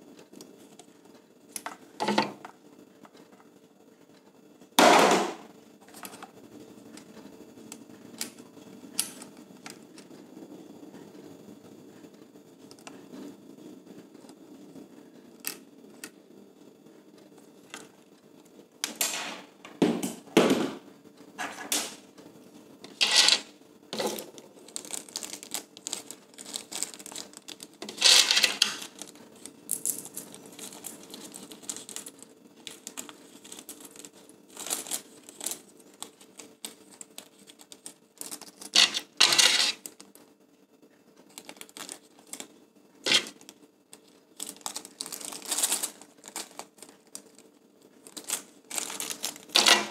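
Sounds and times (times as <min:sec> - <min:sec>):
plastic bags crinkling: 0:24.0 - 0:40.2, 0:41.3 - 0:42.5, 0:43.1 - 0:49.9.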